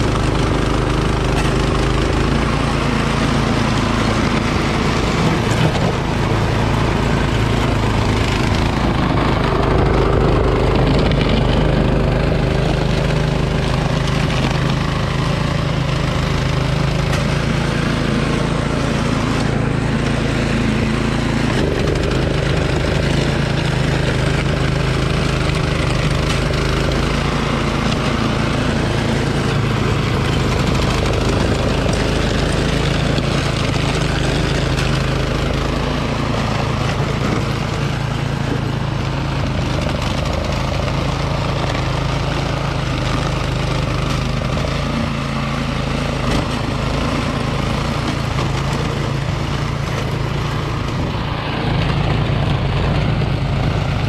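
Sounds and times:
snowblower engine under load: 0:00.0 - 0:54.0.

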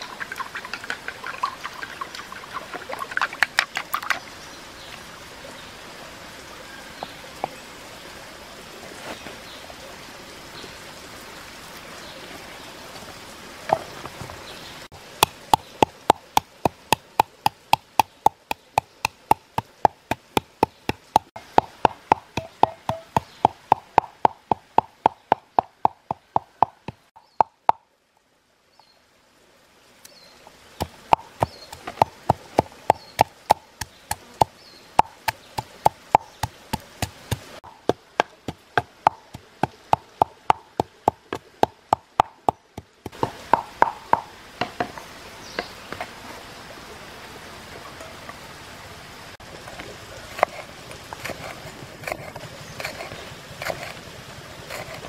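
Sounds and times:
pestle pounding in wooden mortar: 0:15.2 - 0:27.8, 0:30.8 - 0:44.8.

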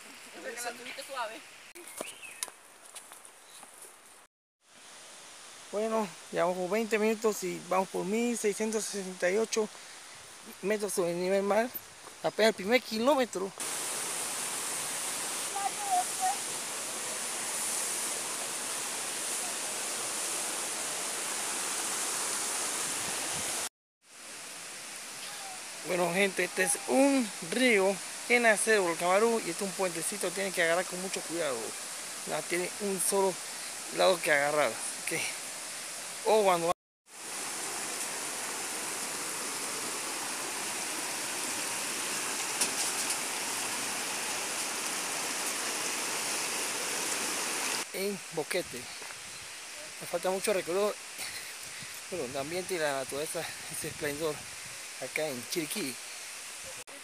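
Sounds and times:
stream running over rocks: 0:00.0 - 0:02.7, 0:04.6 - 0:57.0
river water rushing: 0:13.6 - 0:48.1.

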